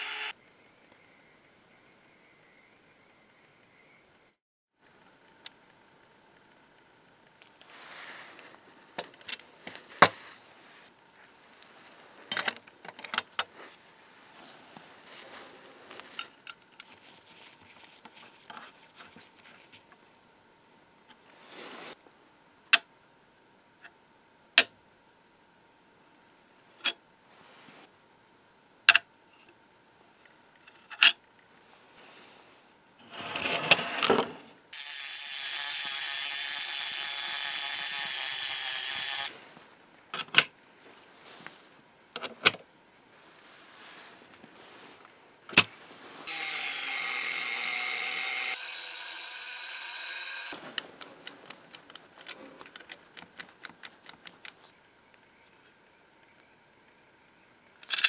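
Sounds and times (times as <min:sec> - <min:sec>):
rotary tool sanding metal: 0:00.0 - 0:00.3, 0:34.8 - 0:39.3, 0:46.3 - 0:50.6.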